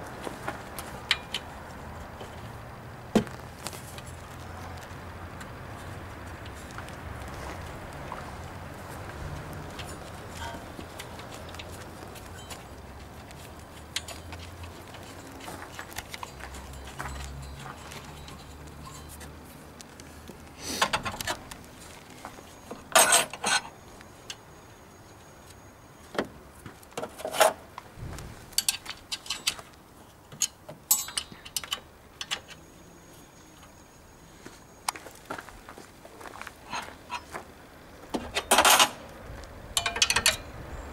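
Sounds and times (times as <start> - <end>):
metal tools clinking and rattling: 9.7 - 12.7, 13.7 - 19.4, 22.6 - 23.8, 28.6 - 29.7, 30.3 - 32.6, 38.3 - 39.0, 39.8 - 40.5.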